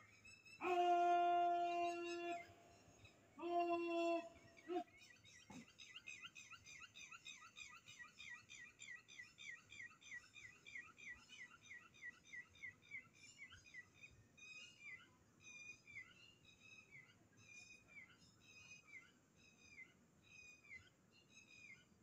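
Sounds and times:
faint chirping animal call: 0:00.0 - 0:08.1.

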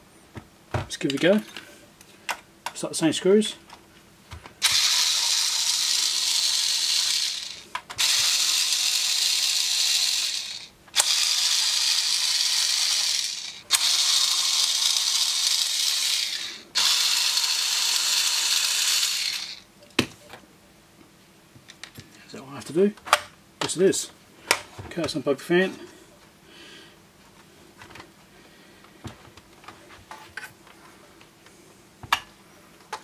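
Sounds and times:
cordless electric screwdriver running: 0:04.6 - 0:19.6.

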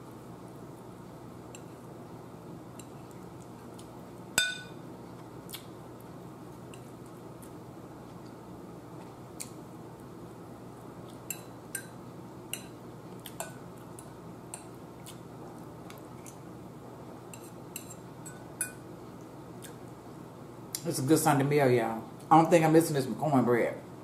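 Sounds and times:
low room hum: 0:00.0 - 0:24.0
fork clinking on ceramic bowl: 0:04.4 - 0:04.8, 0:17.4 - 0:18.8.

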